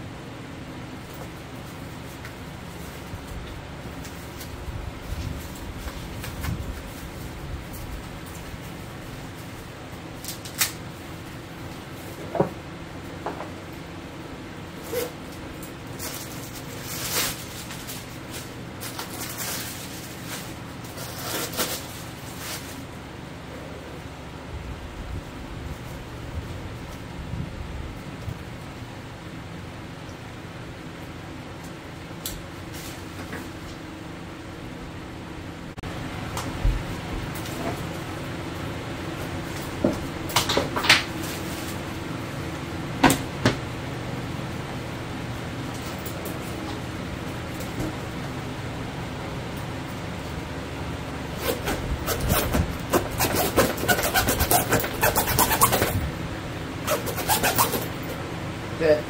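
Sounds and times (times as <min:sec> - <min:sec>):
steady low hum: 0:00.0 - 0:59.0
packaging wrap rustling: 0:15.9 - 0:22.9.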